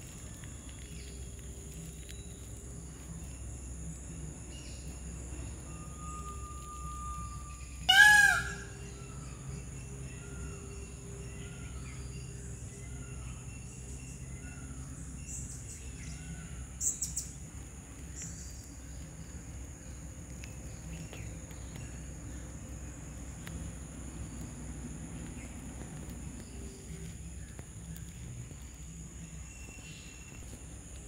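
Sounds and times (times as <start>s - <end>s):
high insect drone: 0.0s - 31.0s
chicken calling: 6.5s - 9.0s.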